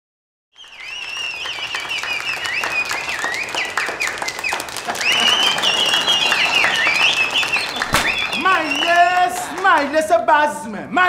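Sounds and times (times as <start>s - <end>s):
high swooping whistles: 0.6s - 9.2s
hand clapping: 0.9s - 9.9s.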